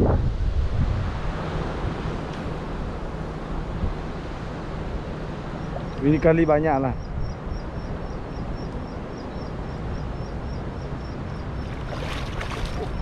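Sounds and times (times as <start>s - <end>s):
wind rumble on microphone: 0.0s - 13.0s
faint high ticking chirp: 5.4s - 13.0s
river water: 7.4s - 13.0s
net splashing out of water: 11.7s - 13.0s.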